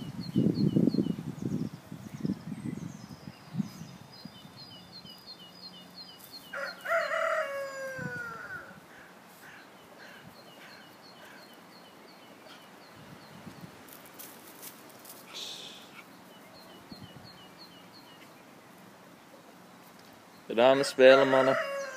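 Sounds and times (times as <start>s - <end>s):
rooster crowing: 6.5s - 9.1s, 20.8s - 21.9s.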